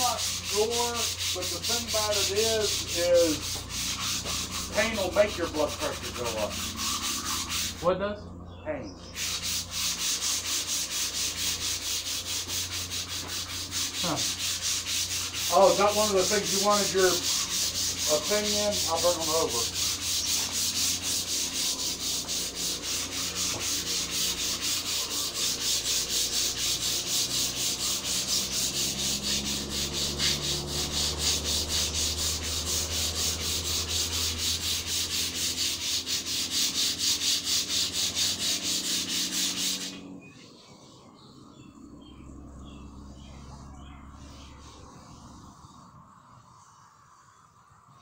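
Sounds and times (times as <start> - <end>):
sandpaper rubbing on block: 0.0 - 7.9, 9.1 - 40.0.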